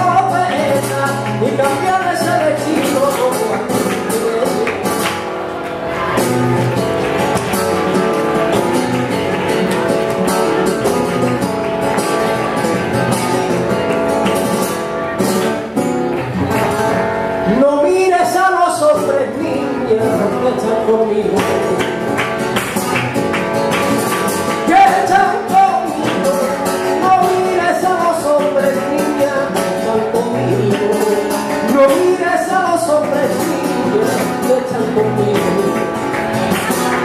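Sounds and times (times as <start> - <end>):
person singing: 0.0 - 5.0, 17.5 - 22.1, 24.6 - 37.0
guitar playing: 0.0 - 37.0.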